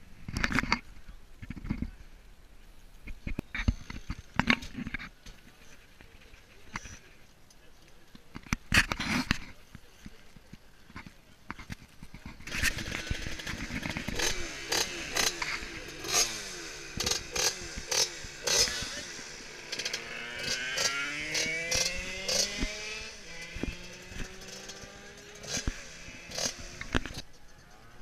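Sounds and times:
moped engine revving: 12.3s - 28.0s.

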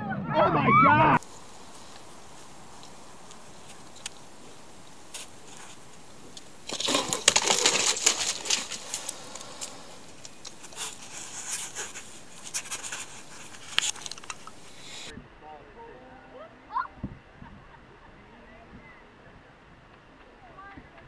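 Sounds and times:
clicks and rustles: 1.2s - 15.1s
scuffling on dry ground: 1.2s - 15.1s.

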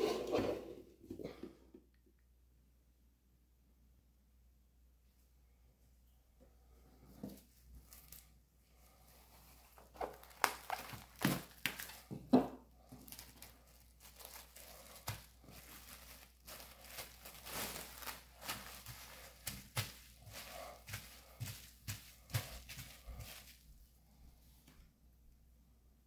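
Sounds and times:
crinkling and rustling: 7.0s - 24.9s.

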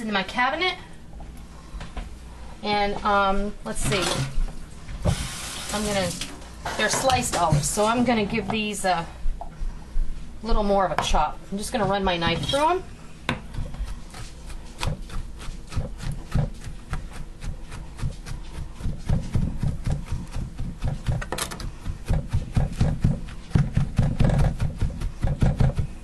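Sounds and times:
knife chopping on plastic board: 13.3s - 26.0s.

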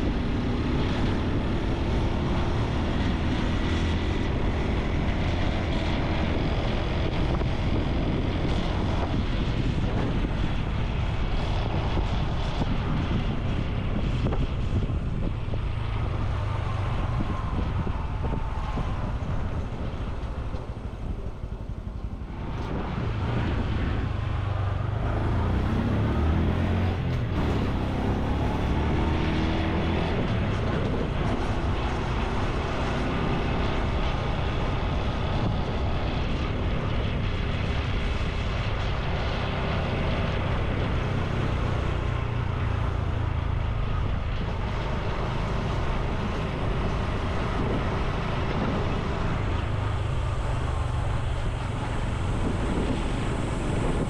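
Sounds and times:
motorcycle engine running: 0.0s - 28.8s
road and wind noise: 0.0s - 54.0s.

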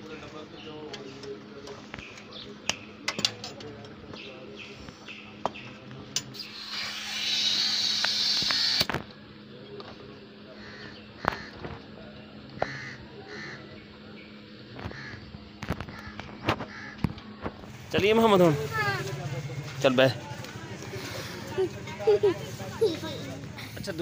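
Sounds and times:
compressed air hissing from nozzle: 6.4s - 8.9s
bird calls: 10.5s - 11.9s, 12.6s - 17.6s.

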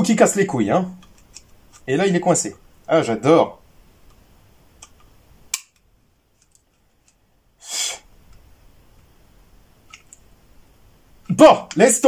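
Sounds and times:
brief noise hiss: 7.6s - 8.0s.

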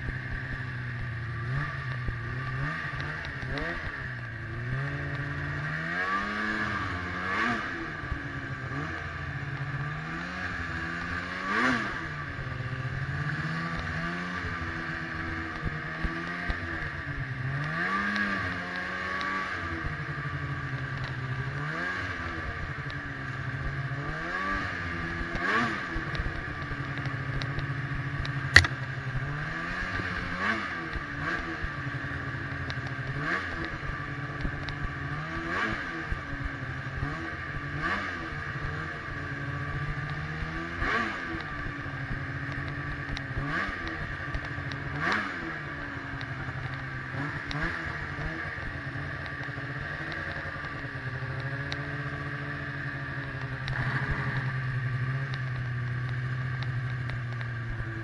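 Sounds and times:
snowmobile engine revving: 0.0s - 58.0s
sharp click: 28.2s - 28.8s.

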